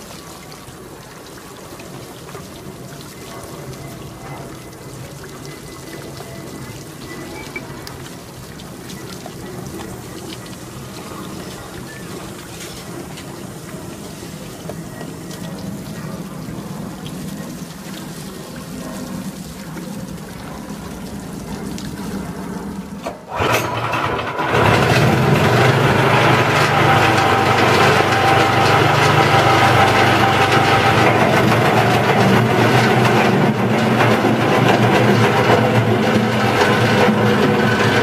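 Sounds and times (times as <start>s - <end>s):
engine starting and running: 22.9s - 38.0s.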